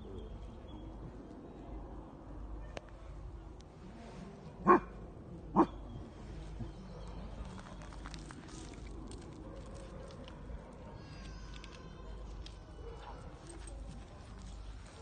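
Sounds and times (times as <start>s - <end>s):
dog barking: 4.6s - 4.9s, 5.6s - 5.8s.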